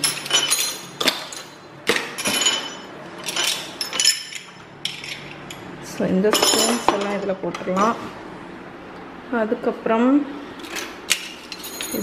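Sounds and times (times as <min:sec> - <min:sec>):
kitchen utensils clinking in drawer: 0:00.0 - 0:05.7, 0:06.3 - 0:08.0, 0:10.6 - 0:12.0.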